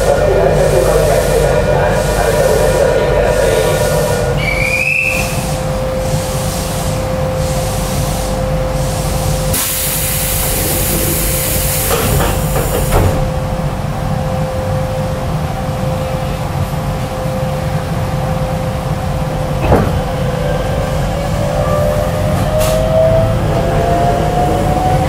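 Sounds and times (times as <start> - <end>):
train electrical hum: 0.0 - 25.0
compressed air hiss: 5.2 - 13.0
train doors knocking shut: 10.4 - 13.4, 19.6 - 20.3.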